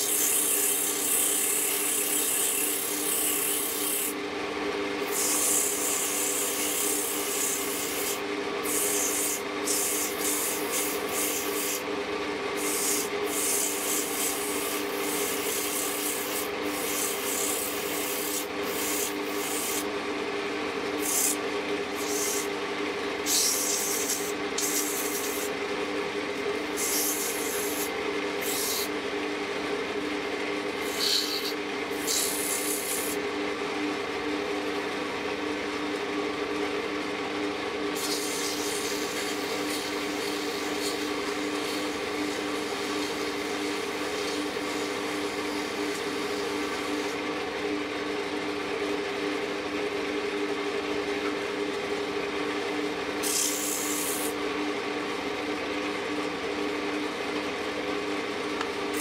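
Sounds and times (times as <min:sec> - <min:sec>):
sandpaper rubbing spinning wood: 0:00.0 - 0:04.2, 0:05.0 - 0:11.9, 0:12.5 - 0:19.9, 0:21.0 - 0:22.5, 0:23.2 - 0:25.6, 0:26.6 - 0:28.9, 0:30.8 - 0:33.2, 0:38.0 - 0:47.1, 0:53.2 - 0:54.4
lathe motor hum: 0:00.0 - 0:33.5, 0:38.0 - 0:47.3.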